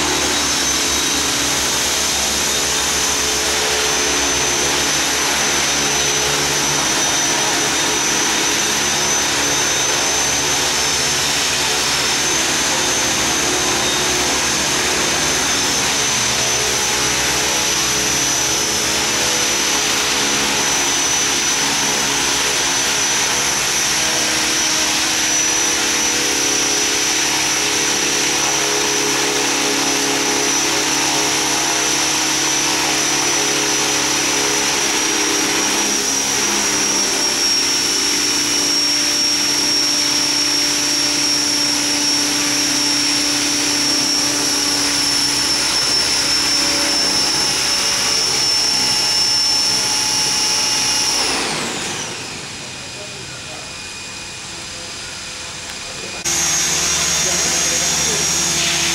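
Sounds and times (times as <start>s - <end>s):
model helicopter motor whine: 0.0s - 58.9s
rotors humming: 54.0s - 58.9s.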